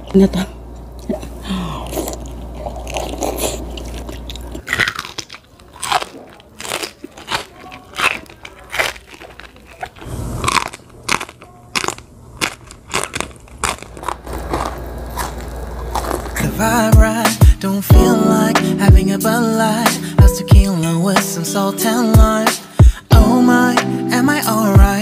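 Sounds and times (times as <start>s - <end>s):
crisp food crunching: 1.6s - 17.8s.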